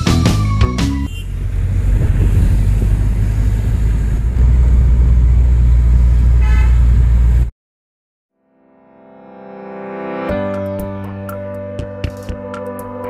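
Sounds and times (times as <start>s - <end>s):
road traffic rumble: 0.0s - 7.5s
car horn toot: 1.0s - 1.4s, 6.4s - 7.0s.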